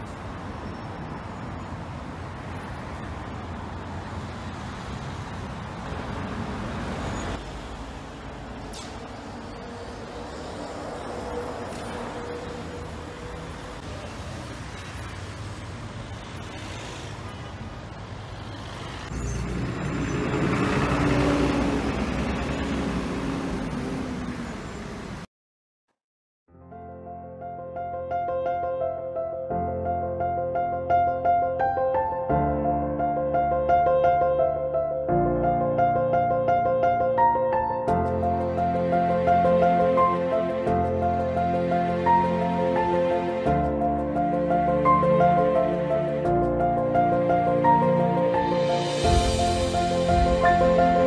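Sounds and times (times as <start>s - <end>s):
road traffic: 0.0s - 25.3s, 32.7s - 51.0s
bus engine running: 17.2s - 25.3s.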